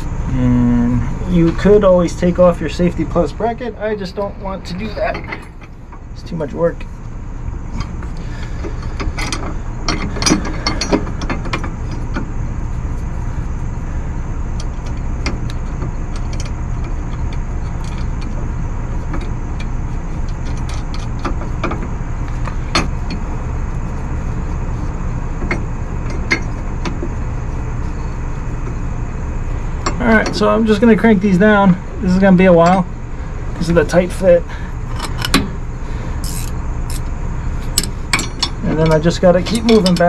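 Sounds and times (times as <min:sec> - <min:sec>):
steady low rumble: 0:00.0 - 0:40.0
ratchet wrench clicking: 0:34.9 - 0:35.6, 0:36.2 - 0:37.1
metal clinks: 0:37.7 - 0:40.0.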